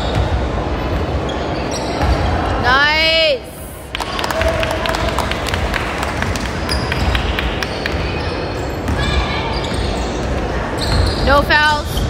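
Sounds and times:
sneakers squeaking: 0.0 - 2.8, 6.1 - 12.0
voices of players and spectators: 0.0 - 12.0.

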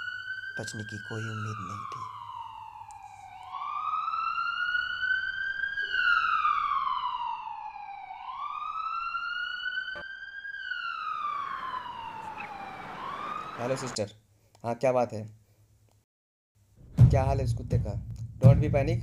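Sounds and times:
ambulance siren wailing: 0.0 - 14.0.

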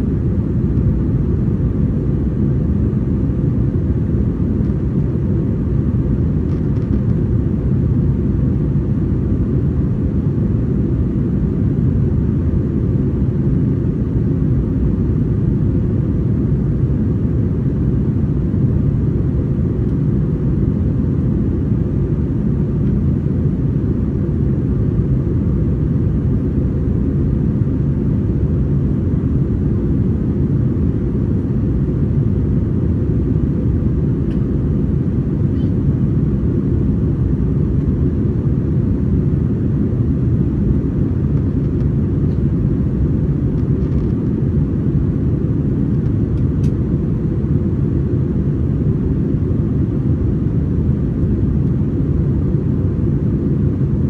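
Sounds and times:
airplane cabin drone: 0.0 - 54.0.

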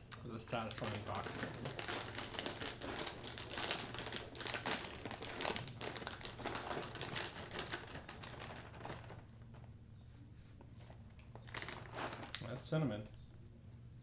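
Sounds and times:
plastic bag crinkling: 0.6 - 9.6, 10.8 - 12.7.

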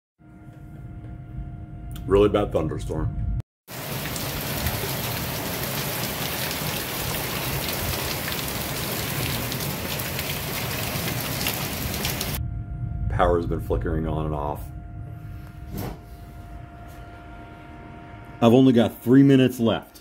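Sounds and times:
heavy rain pouring: 3.7 - 12.4.

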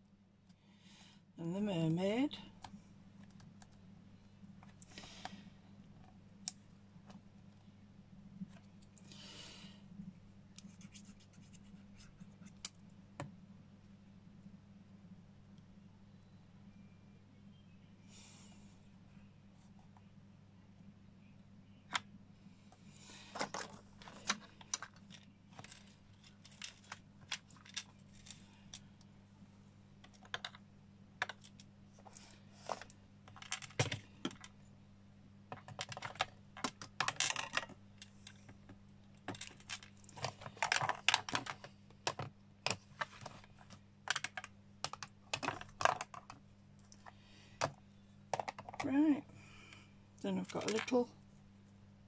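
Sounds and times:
steady low hum: 0.0 - 52.0
small craft pieces clicking and tapping: 30.0 - 30.6.

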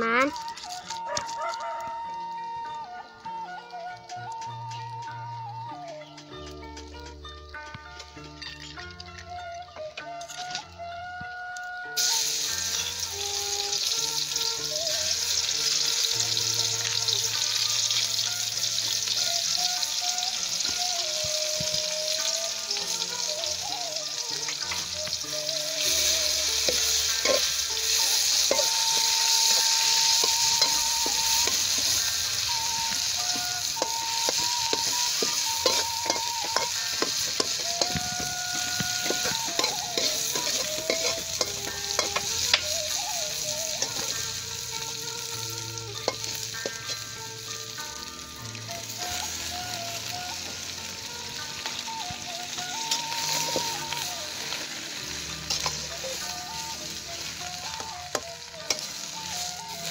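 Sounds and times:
paste sizzling in hot oil: 11.9 - 59.9
metal spatula scraping wok: 24.6 - 48.0, 52.4 - 59.9.

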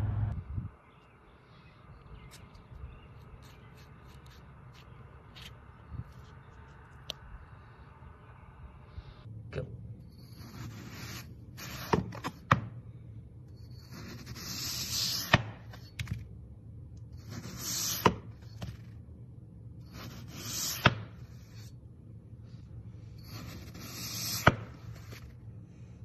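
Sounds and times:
knife slicing through foam: 10.3 - 12.4, 13.8 - 15.9, 17.2 - 18.4, 19.9 - 21.7, 23.2 - 25.3.

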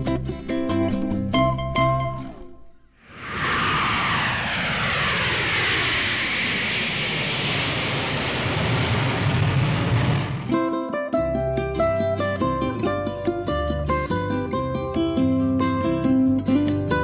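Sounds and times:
jet airliner flying overhead: 3.0 - 10.5.

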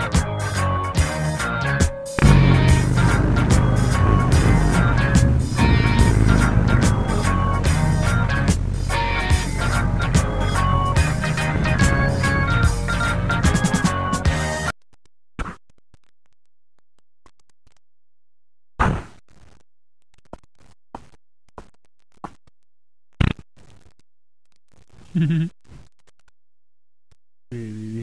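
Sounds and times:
brief low pitched sound: 2.2 - 9.1.

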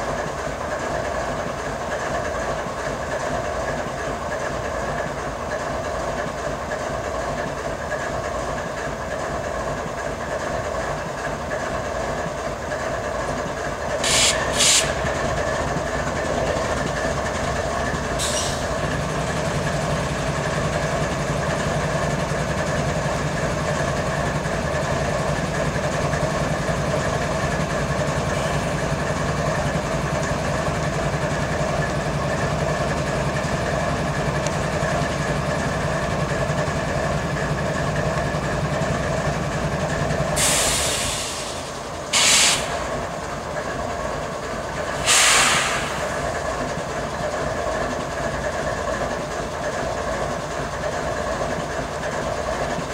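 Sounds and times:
diesel locomotive idling: 0.0 - 52.9
air compressor throbbing: 14.0 - 15.0
sharp air hisses: 14.0 - 15.0, 18.2 - 18.7, 40.4 - 42.9, 45.0 - 46.4.

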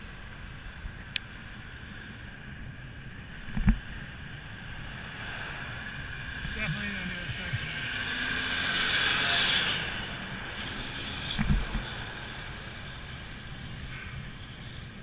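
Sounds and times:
truck passing on a bridge: 7.7 - 14.9.

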